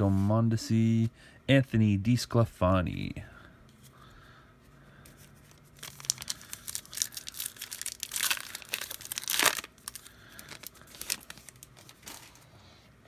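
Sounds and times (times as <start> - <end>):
card pack wrapper crinkling: 5.3 - 12.4.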